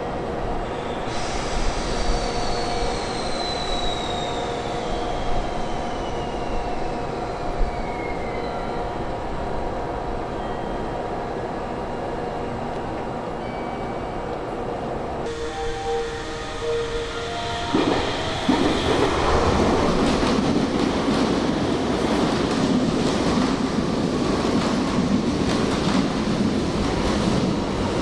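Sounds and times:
freight train wheels on rail: 0.1 - 28.0
high whine: 15.3 - 20.2.

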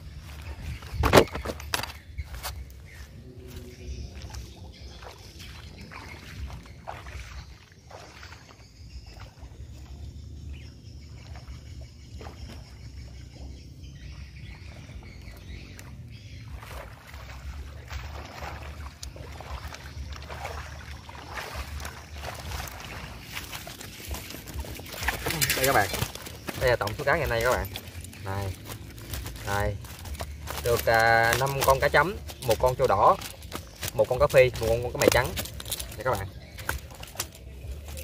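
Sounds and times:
wind rumble on microphone: 0.0 - 7.6
footsteps splashing through water: 0.0 - 38.0.

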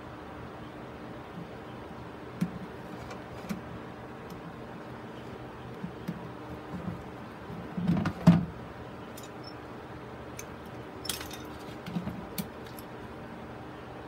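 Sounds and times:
steady faint hum: 0.0 - 14.0
small tools clicking and clinking: 9.1 - 9.6, 10.4 - 11.7.

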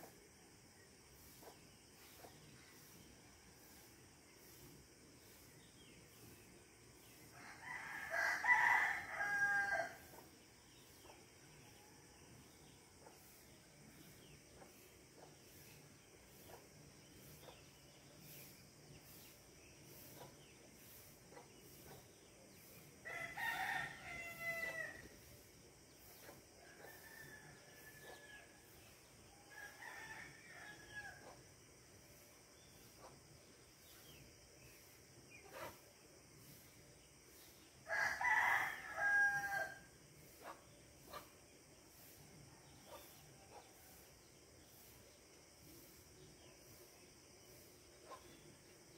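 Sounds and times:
night insects hissing: 0.0 - 48.9
rooster crowing: 7.4 - 10.1, 23.0 - 25.0, 37.9 - 39.9.

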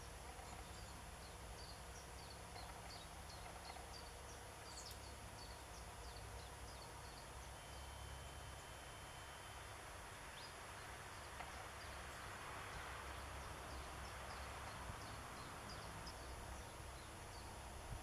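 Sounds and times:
soft high ticks and chirps: 0.0 - 8.0, 11.2 - 12.1
faint outdoor background noise: 0.0 - 18.0.

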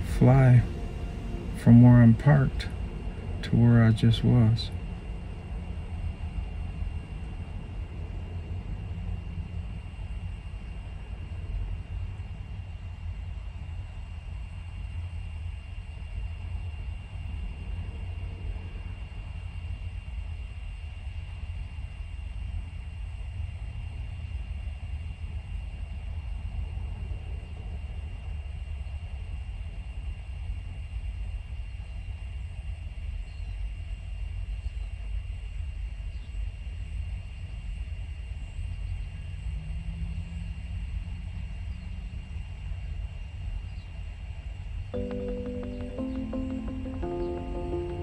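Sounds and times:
low rumble inside parked car: 0.0 - 20.1
faint high-pitched whine: 0.0 - 48.0.

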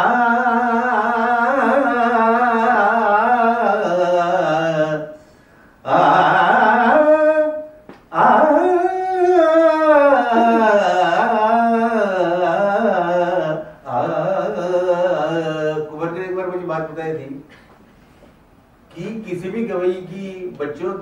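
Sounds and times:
man singing unaccompanied: 0.0 - 5.2, 5.8 - 17.0.

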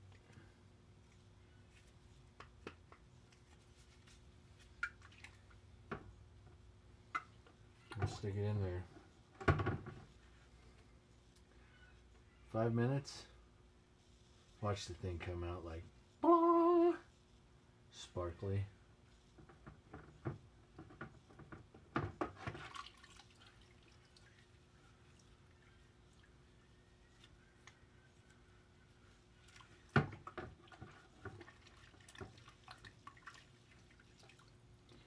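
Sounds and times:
liquid splashing in plastic bucket: 4.7 - 5.6, 22.2 - 25.4, 29.4 - 35.0.

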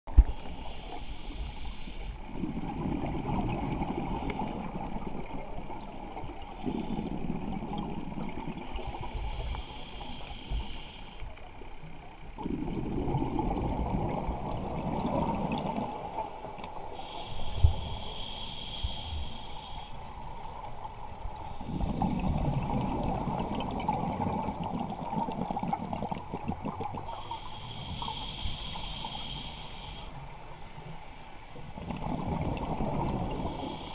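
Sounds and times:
hissing inhale through regulator: 0.2 - 2.8, 6.4 - 7.6, 8.5 - 11.6, 15.0 - 23.4, 26.9 - 33.9
bubbling exhaled air: 2.2 - 5.9, 12.4 - 19.7, 21.5 - 29.6, 31.7 - 33.9.

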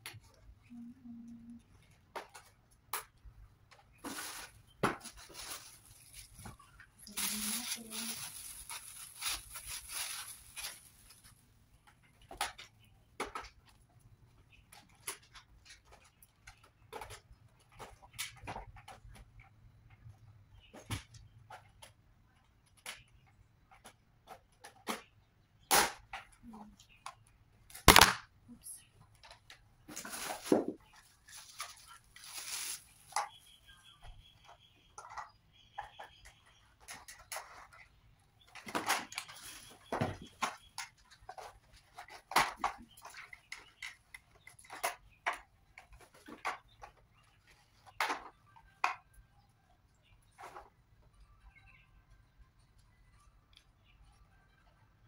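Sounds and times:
plastic parts clicking and knocking: 1.2 - 7.6, 10.7 - 28.3, 34.4 - 49.3.

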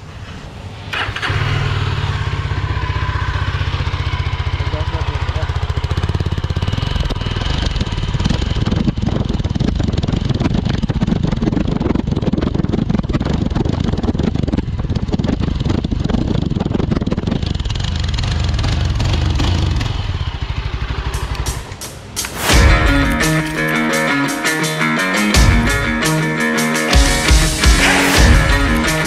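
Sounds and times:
motorcycle engine running: 1.0 - 29.0.

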